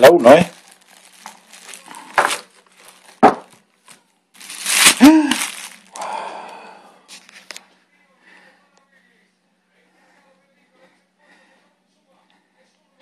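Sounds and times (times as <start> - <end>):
plastic wrapping crinkling: 0.0 - 6.2.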